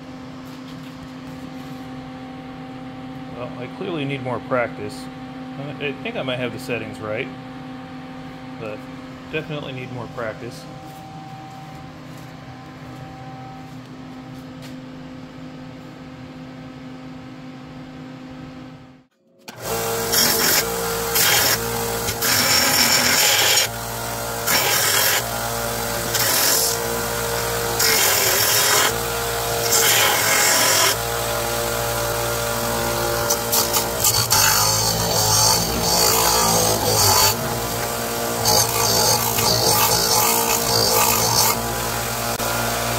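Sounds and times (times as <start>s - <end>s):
disc sander grinding steel: 19.5s - 42.9s.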